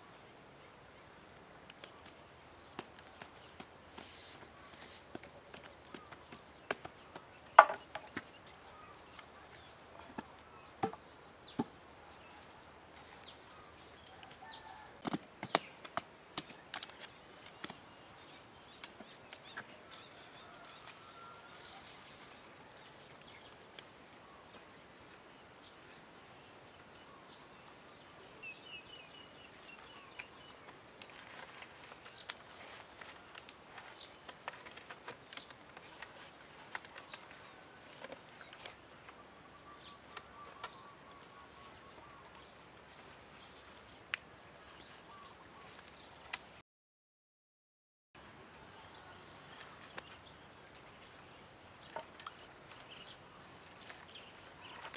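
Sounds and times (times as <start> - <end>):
faint outdoor ambience: 0.0 - 46.6, 48.2 - 54.9
wooden poles clicking and tapping: 1.5 - 17.8, 31.0 - 39.2
bamboo poles knocking: 1.8 - 9.3, 9.9 - 12.5.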